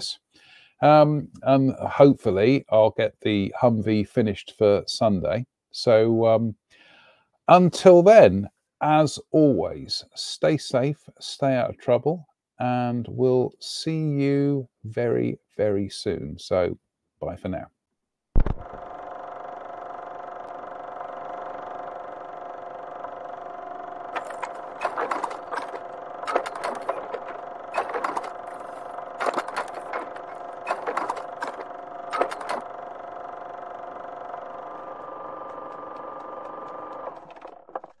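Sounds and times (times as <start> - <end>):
film projector whirring: 18.4 - 38.0
projector rattling clatter: 23.7 - 38.0.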